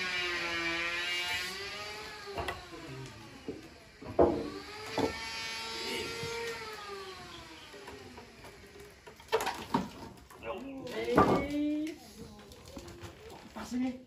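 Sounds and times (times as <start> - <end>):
electric motor whining: 0.0 - 11.2
wooden knocks of log: 3.5 - 5.2.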